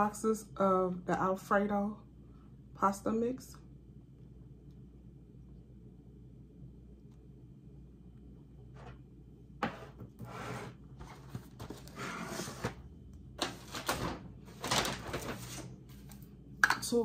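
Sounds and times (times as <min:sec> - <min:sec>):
groceries rustling and knocking: 0:09.6 - 0:16.3.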